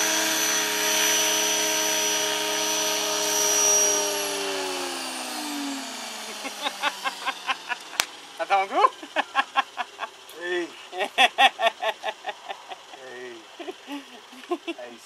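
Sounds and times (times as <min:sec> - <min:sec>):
model helicopter rotor whine: 0:00.0 - 0:15.0.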